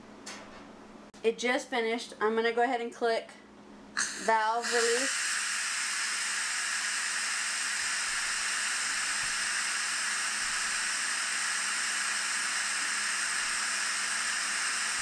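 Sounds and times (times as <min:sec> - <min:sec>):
steam hissing from pressure valve: 0:04.0 - 0:15.0.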